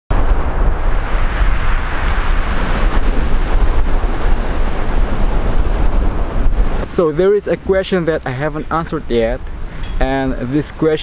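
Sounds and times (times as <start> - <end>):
surf breaking on pebble beach: 0.1 - 7.7
wind rumbling on microphone: 0.1 - 11.0.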